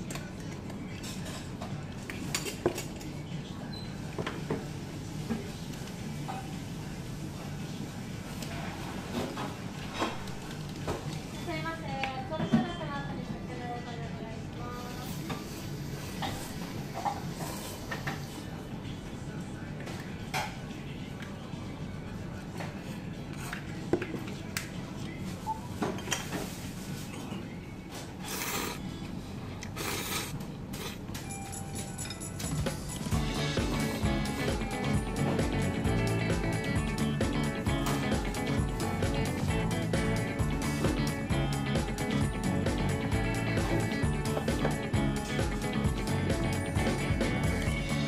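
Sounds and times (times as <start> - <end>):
faint background music: 0.0 - 48.0
low background hum: 0.0 - 48.0.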